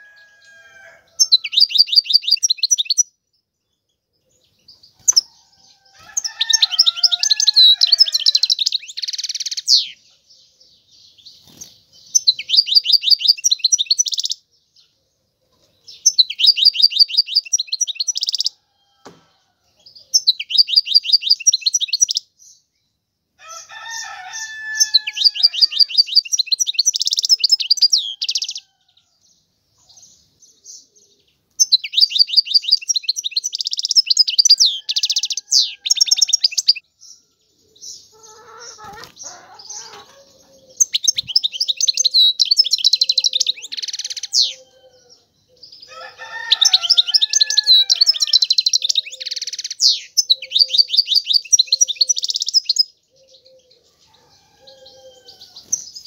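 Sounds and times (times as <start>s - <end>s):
goldfinch twittering song: 15.9s - 18.6s, 31.6s - 37.2s, 37.9s - 44.6s.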